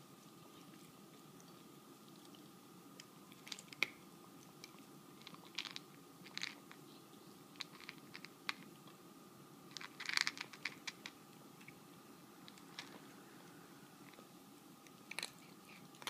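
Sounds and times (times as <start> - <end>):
cats crunching food: 1.5 - 6.8, 7.5 - 8.7, 9.7 - 11.8, 12.4 - 14.3, 14.9 - 16.0.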